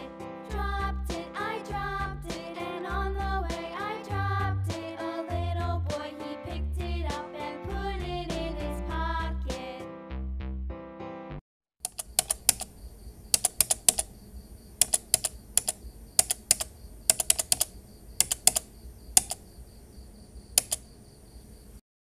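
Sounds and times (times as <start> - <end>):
music: 0.0 - 11.4
keyboard typing clicks: 11.8 - 14.2, 14.8 - 19.5, 20.5 - 20.9.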